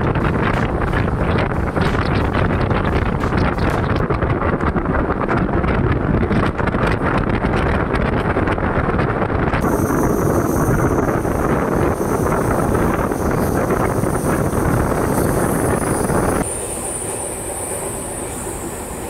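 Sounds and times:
train rolling at speed: 0:00.0 - 0:19.0
wind buffeting microphone: 0:00.0 - 0:19.0
thin high whine: 0:09.6 - 0:19.0.

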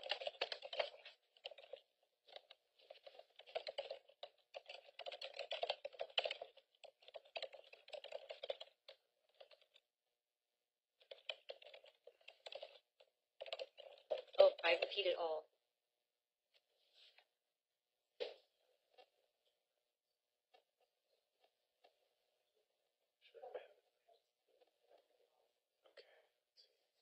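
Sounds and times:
typing on computer keyboard: 0:00.0 - 0:09.8, 0:11.0 - 0:15.0.

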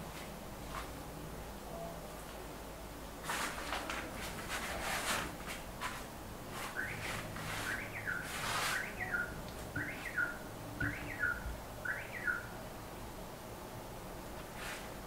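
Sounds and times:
bird chirping: 0:06.7 - 0:12.6.

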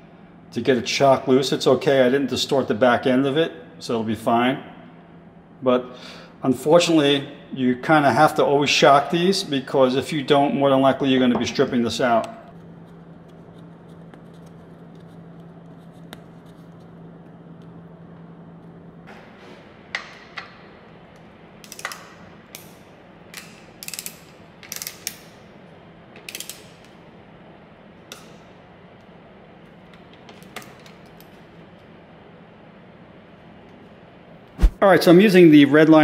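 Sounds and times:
faint steady hum: 0:00.0 - 0:36.0
ratcheting wrench clicking: 0:21.6 - 0:22.7, 0:23.3 - 0:25.4, 0:26.2 - 0:26.9.

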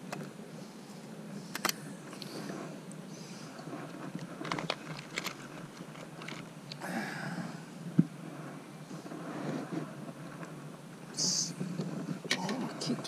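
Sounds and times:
low steady hum: 0:00.0 - 0:13.0
fishing tackle clicks and rustling: 0:01.5 - 0:06.8.

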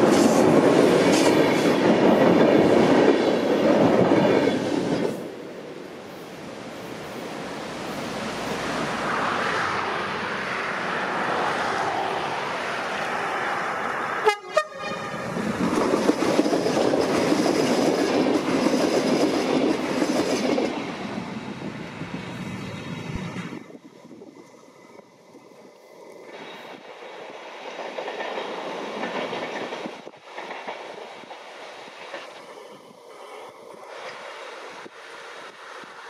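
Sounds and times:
train passing by: 0:00.0 - 0:36.0
train wheels rumbling over bridge: 0:00.0 - 0:36.0.

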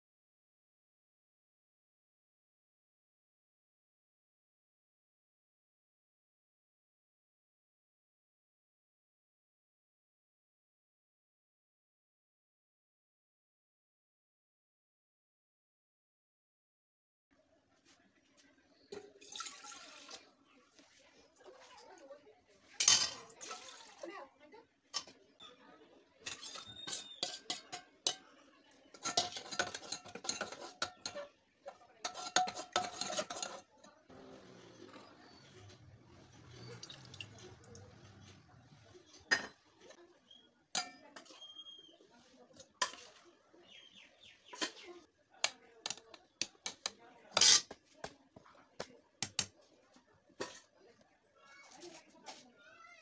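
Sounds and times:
ladle scraping a metal pot: 0:26.2 - 0:28.3, 0:28.9 - 0:33.7, 0:46.6 - 0:47.8.

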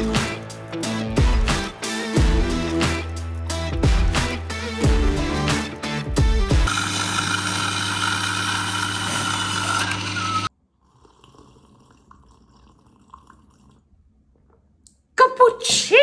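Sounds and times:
coffee machine pump hum and hiss: 0:06.7 - 0:10.5
sipping from a mug: 0:10.7 - 0:14.7.

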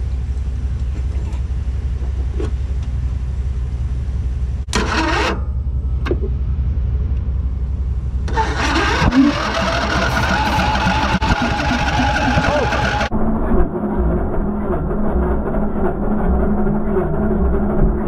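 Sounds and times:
mower engine running: 0:04.7 - 0:05.4, 0:08.2 - 0:18.0.

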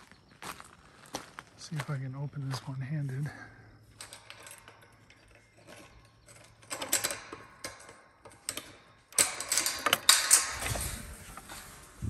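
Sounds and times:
metal chain clinking and rattling: 0:03.9 - 0:12.0.

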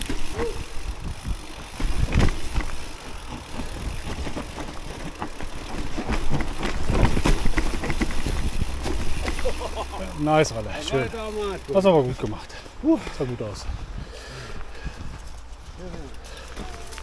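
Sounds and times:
bike knocks and rattles: 0:00.0 - 0:11.8
tyres rolling through leaves: 0:00.0 - 0:13.6
wind rumble on microphone: 0:13.6 - 0:15.7.

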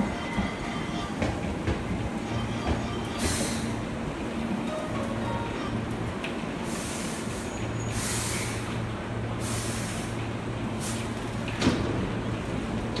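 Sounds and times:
train equipment humming: 0:00.0 - 0:07.7.

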